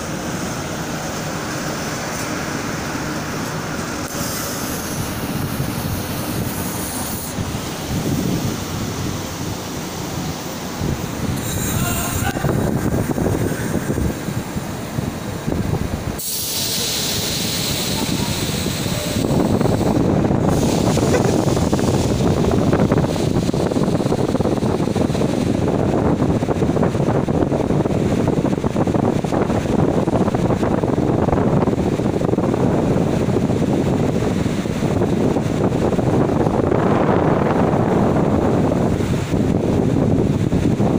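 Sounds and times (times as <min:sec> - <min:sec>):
air hissing: 0:00.0 - 0:25.5
train mechanical rumble: 0:00.0 - 0:40.9
background voices: 0:11.4 - 0:14.3.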